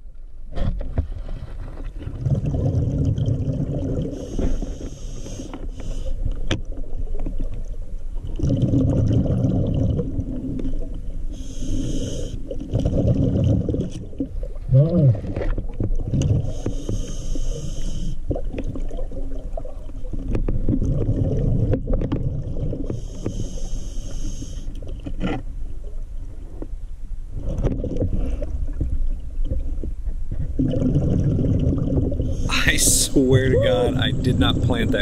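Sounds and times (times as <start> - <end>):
bubbles gurgling underwater: 2.0 - 4.3, 8.3 - 11.0, 12.6 - 16.5, 18.3 - 22.9, 29.5 - 32.5
regulator inhalation hiss: 4.2 - 6.1, 11.4 - 12.4, 16.5 - 18.2.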